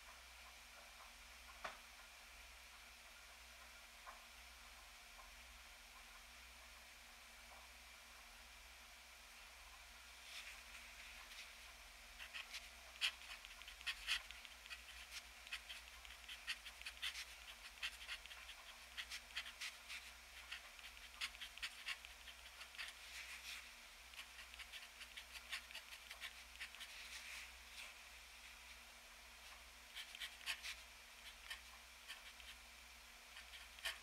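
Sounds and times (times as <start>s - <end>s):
pen nib scratching paper: 12.2s - 27.2s, 29.9s - 32.6s, 33.3s - 34.0s.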